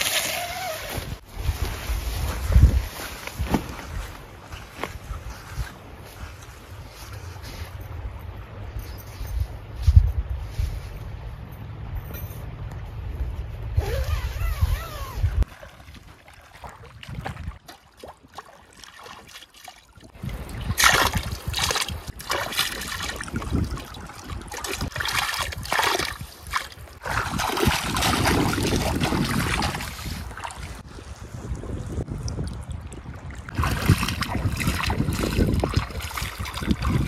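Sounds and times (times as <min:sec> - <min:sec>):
plate swishing through river water: 0:15.3 - 0:31.6, 0:33.0 - 0:37.0.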